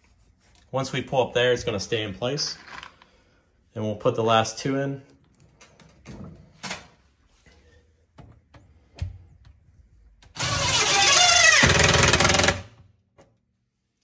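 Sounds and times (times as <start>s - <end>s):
impact driver hammering screw: 10.4s - 12.8s.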